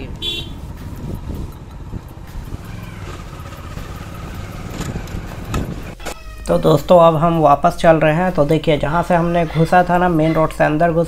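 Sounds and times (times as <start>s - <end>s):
vehicle engine rumbling: 0.0s - 6.0s.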